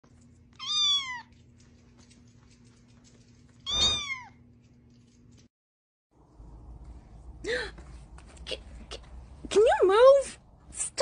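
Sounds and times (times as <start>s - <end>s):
kitten meowing: 0.6s - 1.3s, 3.7s - 4.3s.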